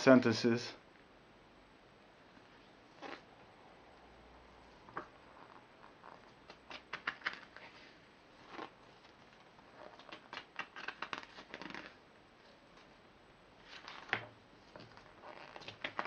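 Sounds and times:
paper pages turning: 0:04.9 - 0:12.0, 0:13.6 - 0:16.0.

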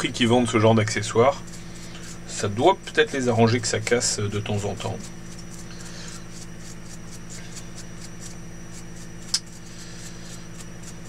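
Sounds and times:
brush scratching on plastic: 0:00.0 - 0:11.0
steady low hum: 0:00.0 - 0:11.0
sharp click: 0:09.3 - 0:09.5.

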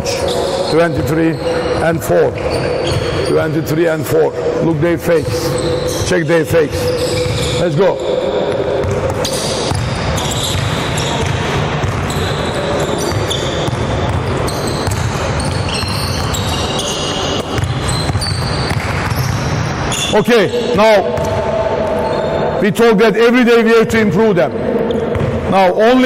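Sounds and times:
sneakers squeaking on court: 0:00.0 - 0:04.5, 0:05.1 - 0:22.6, 0:24.8 - 0:25.5
basketball bouncing: 0:08.4 - 0:19.7, 0:20.5 - 0:22.2, 0:24.9 - 0:25.5.

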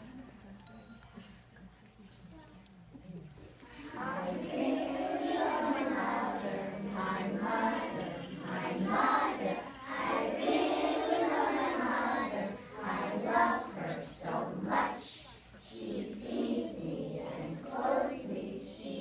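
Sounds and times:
small children singing: 0:03.7 - 0:19.0.

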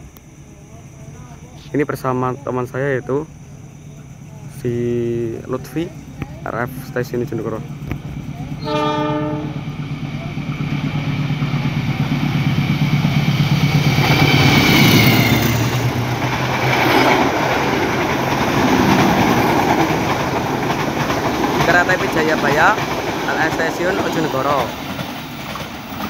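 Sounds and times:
diesel locomotive engine drone: 0:00.0 - 0:26.0
train wheels on rails: 0:04.0 - 0:26.0
train horn blast: 0:08.6 - 0:09.7.

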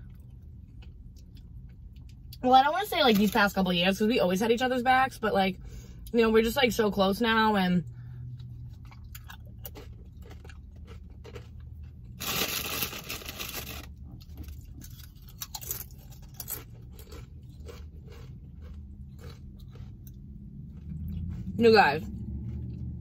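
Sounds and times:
low hum: 0:04.6 - 0:23.0
chewing: 0:08.3 - 0:12.2, 0:14.1 - 0:23.0
scraping crinkling noise: 0:08.5 - 0:21.6.

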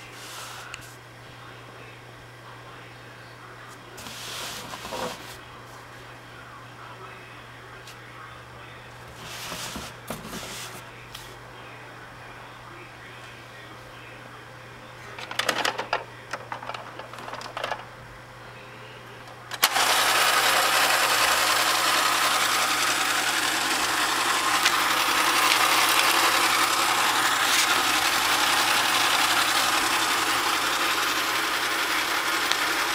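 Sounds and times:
plastic toy clicks and knocks: 0:15.2 - 0:17.8
toy motor running: 0:19.5 - 0:32.9.

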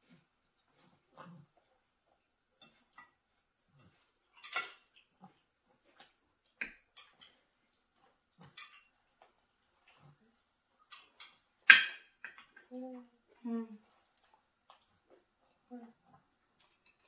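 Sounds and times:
fork clinking on a plate: 0:04.4 - 0:04.9.

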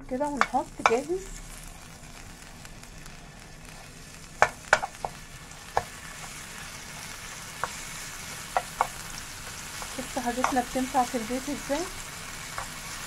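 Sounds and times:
garlic sizzling in oil: 0:00.0 - 0:13.0
metal spoon clicking on pan: 0:00.4 - 0:01.1, 0:09.8 - 0:10.7.

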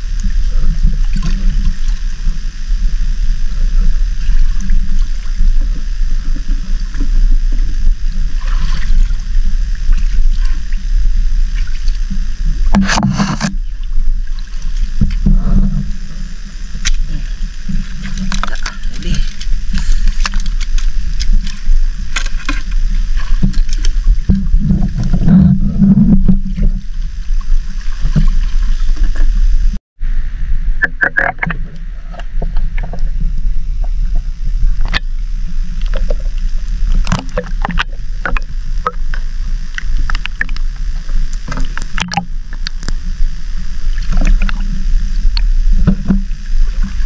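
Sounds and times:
muffled underwater water sloshing: 0:00.0 - 0:29.7
steady low rumble: 0:00.0 - 0:47.0.

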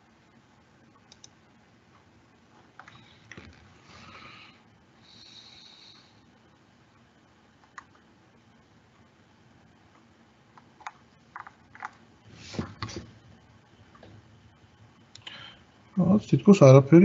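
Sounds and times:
soft computer clicks: 0:00.9 - 0:01.4, 0:02.8 - 0:03.4, 0:07.6 - 0:08.1.

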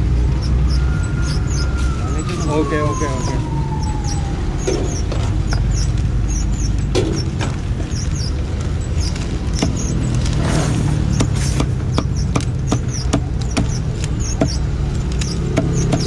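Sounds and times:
cleaver chopping on wooden block: 0:11.1 - 0:14.6, 0:15.2 - 0:16.0.

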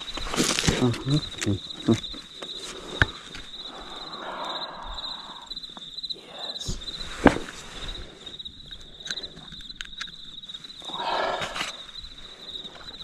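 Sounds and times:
crickets chirping: 0:00.0 - 0:13.0
rustling: 0:06.8 - 0:13.0.

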